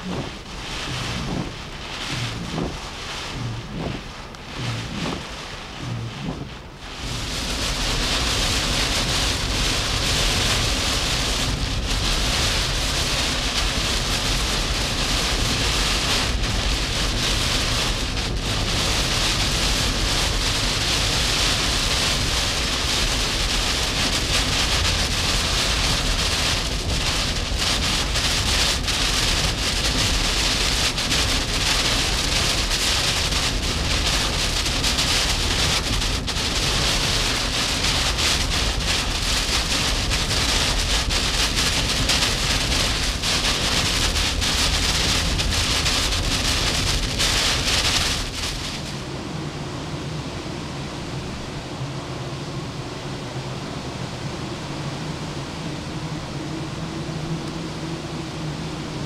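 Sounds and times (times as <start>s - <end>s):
low rumble: 0.0s - 21.2s
heavy rain on windshield: 0.0s - 49.9s.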